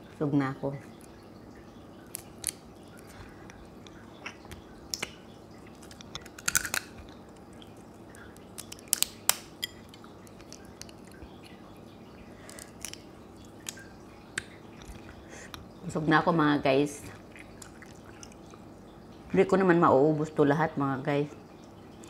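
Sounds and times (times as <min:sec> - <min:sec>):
crab shell cracking: 0:02.0 - 0:03.1, 0:05.8 - 0:11.2, 0:12.4 - 0:15.0
chewing: 0:17.1 - 0:18.6.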